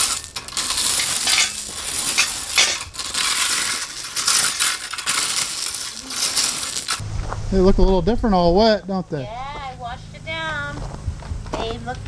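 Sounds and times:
rake scraping through stones: 0:00.0 - 0:07.0
stones rattling and clinking: 0:00.0 - 0:07.0.

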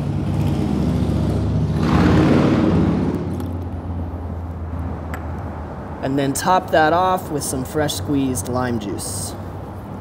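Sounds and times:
vehicle rumbling past: 0:00.0 - 0:06.1.

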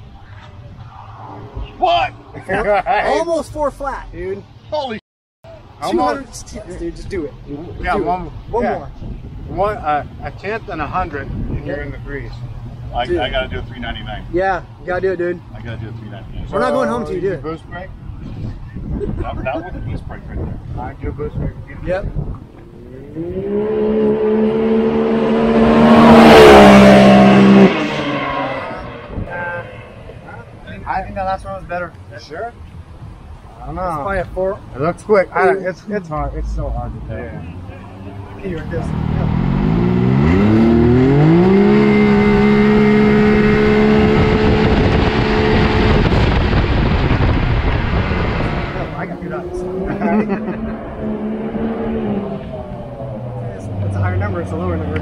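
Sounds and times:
rushing noise: 0:00.0 - 0:03.8, 0:38.2 - 0:53.8
engine revving at full throttle: 0:22.7 - 0:30.0, 0:38.4 - 0:55.0.

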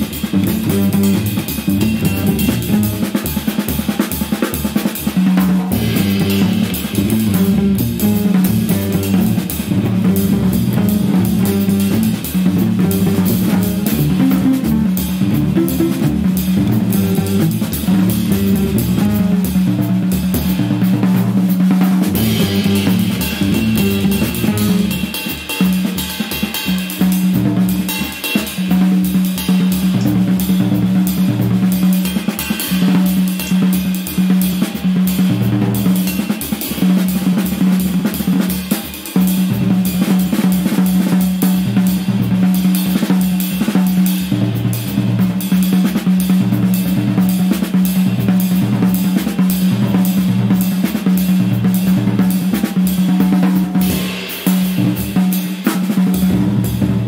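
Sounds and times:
drum kit playing: 0:00.0 - 0:57.0
jazz quartet playing: 0:00.2 - 0:03.2, 0:05.4 - 0:25.2.

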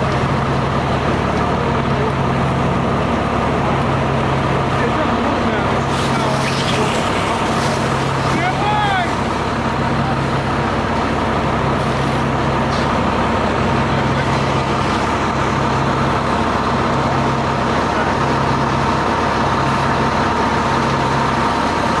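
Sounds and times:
diesel engine running steadily: 0:00.0 - 0:22.0.

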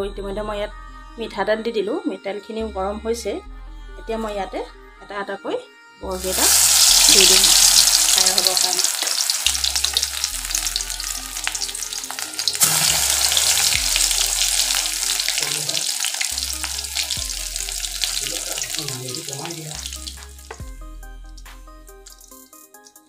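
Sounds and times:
soft background music: 0:00.0 - 0:23.0
fritters sizzling in hot oil: 0:06.2 - 0:20.7, 0:21.3 - 0:22.5.

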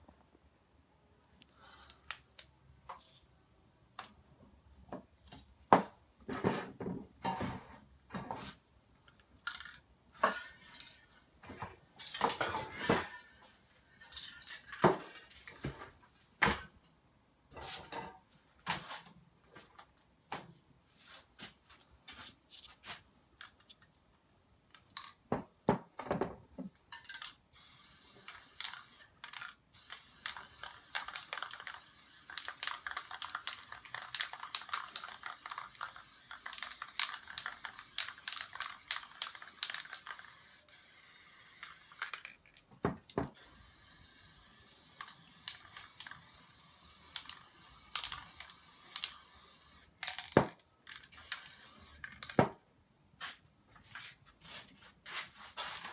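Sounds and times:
spray paint can hissing: 0:27.5 - 0:42.2, 0:43.4 - 0:50.0, 0:51.1 - 0:52.2
handling knocks and clicks: 0:42.0 - 0:43.4.

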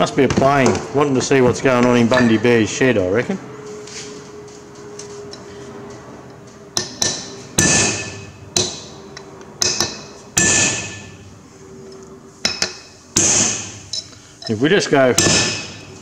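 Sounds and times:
hammer striking steel punch: 0:06.8 - 0:08.9, 0:09.6 - 0:11.2, 0:12.5 - 0:13.8, 0:15.2 - 0:15.9.

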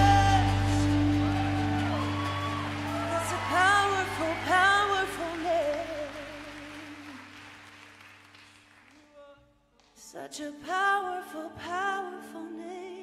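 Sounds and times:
person singing ad-lib phrases: 0:00.0 - 0:01.3, 0:03.1 - 0:07.2
worship band sustained chord: 0:00.0 - 0:06.8.

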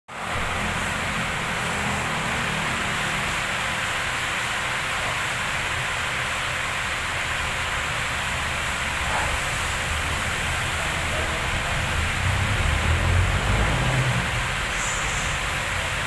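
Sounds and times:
even hiss: 0:00.2 - 0:16.0
low motor hum: 0:07.6 - 0:15.6.

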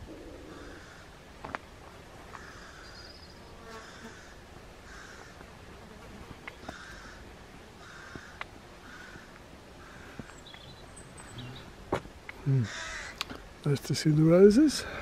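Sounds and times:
faint harsh bird calls: 0:00.0 - 0:01.2, 0:02.3 - 0:05.4, 0:06.4 - 0:13.4.

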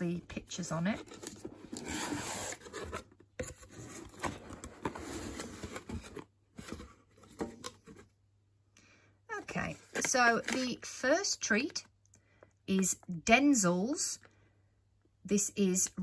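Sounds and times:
cardboard scraping and rubbing: 0:00.7 - 0:08.0.

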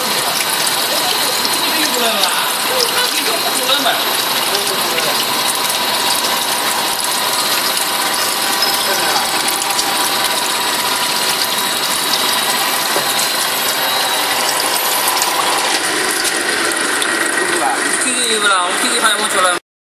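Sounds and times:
machine mechanism ticking: 0:00.0 - 0:18.1
water pouring and splashing: 0:00.0 - 0:19.5.

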